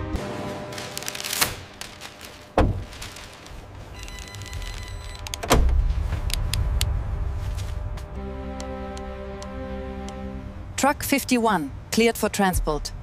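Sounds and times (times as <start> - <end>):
music: 0.0 - 1.4, 7.7 - 11.2
deep low rumble: 2.8 - 8.2
scattered clicks: 4.0 - 5.5.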